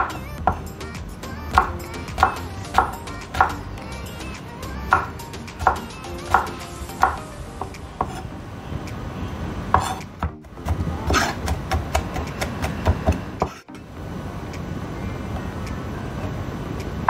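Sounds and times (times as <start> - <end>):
knife chopping on wooden board: 4.9 - 7.2, 9.7 - 13.6.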